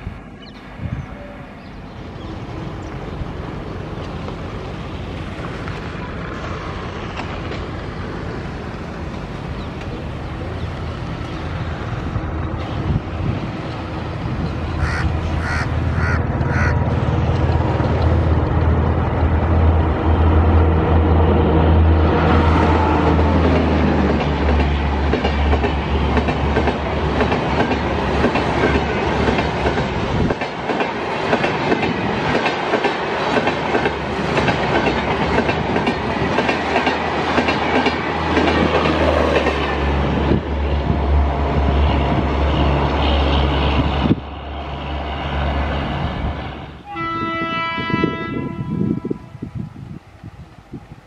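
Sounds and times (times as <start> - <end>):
train wheels rumbling and clattering: 1.7 - 46.8
locomotive horn blast: 46.8 - 49.4.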